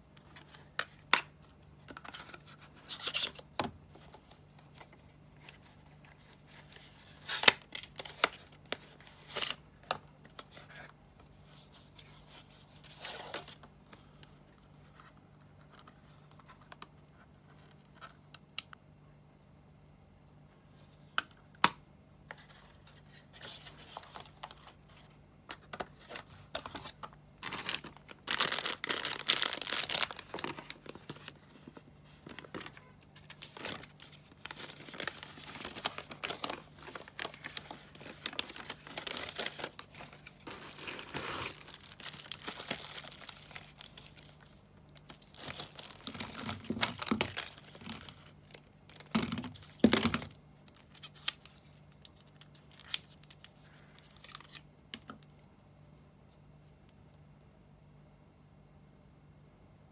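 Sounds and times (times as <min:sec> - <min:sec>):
plastic packaging crinkling and tearing: 0:06.2 - 0:09.6, 0:26.0 - 0:54.7.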